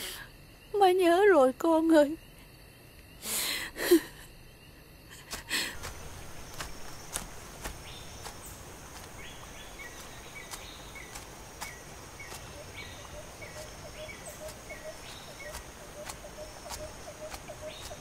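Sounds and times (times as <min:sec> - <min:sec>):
crickets chirping: 0:00.0 - 0:18.0
short repeating insect call: 0:00.0 - 0:18.0.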